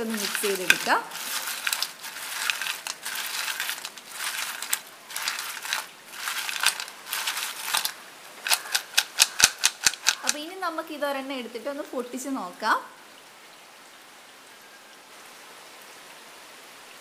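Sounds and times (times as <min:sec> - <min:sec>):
crunchy fries rattling in bowl: 0:00.0 - 0:10.6
sharp clicks: 0:04.6 - 0:10.4.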